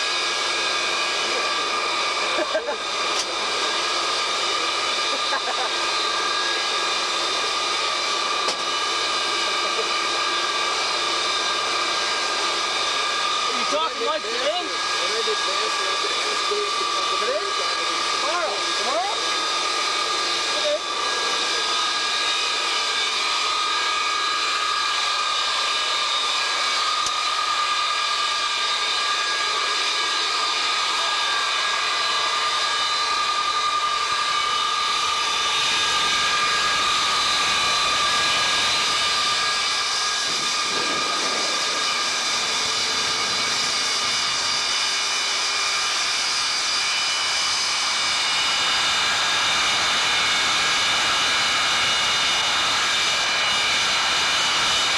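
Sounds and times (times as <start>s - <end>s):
jet engine whine: 0.0s - 54.9s
jet rushing noise: 29.9s - 54.9s.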